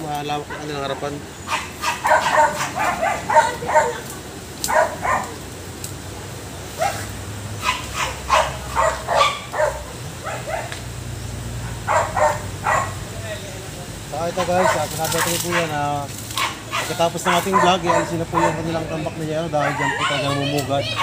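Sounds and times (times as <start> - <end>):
dog barking: 1.5 - 5.4, 6.8 - 10.8, 11.6 - 13.0, 14.4 - 21.0.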